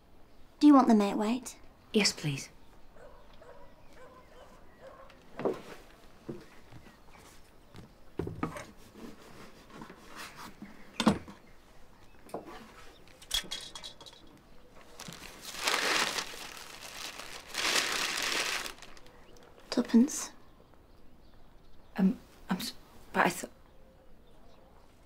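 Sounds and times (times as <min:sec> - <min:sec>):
paper crinkling: 0:14.8 - 0:19.2.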